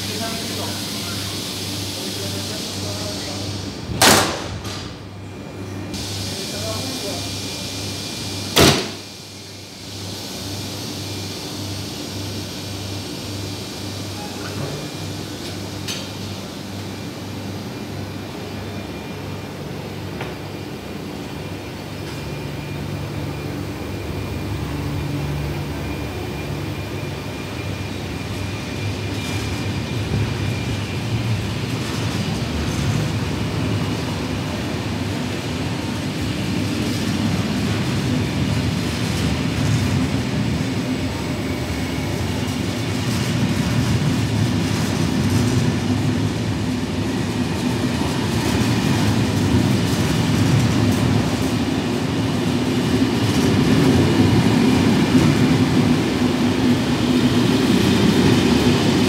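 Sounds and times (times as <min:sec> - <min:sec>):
train wheels rolling on rails: 0:21.7 - 0:59.0.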